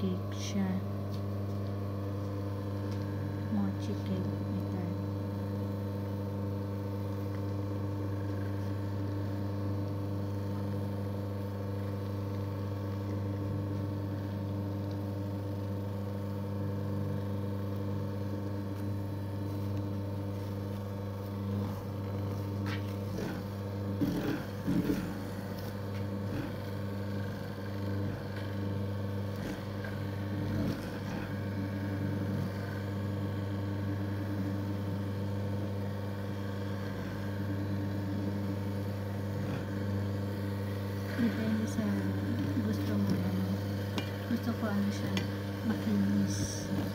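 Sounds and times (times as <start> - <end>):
motor humming: 0.0 - 46.9.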